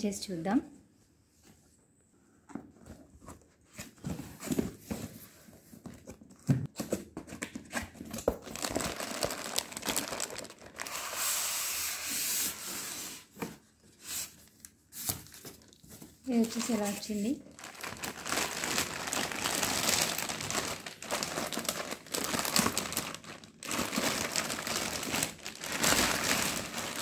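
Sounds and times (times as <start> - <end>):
plastic wrapping crinkling: 8.0 - 11.2, 14.5 - 27.0.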